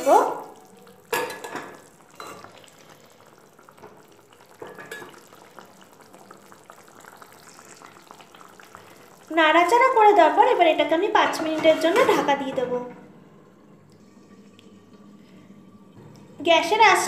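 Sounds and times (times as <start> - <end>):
curry bubbling and sizzling: 0.0 - 17.0
spatula scraping pan: 11.3 - 12.3.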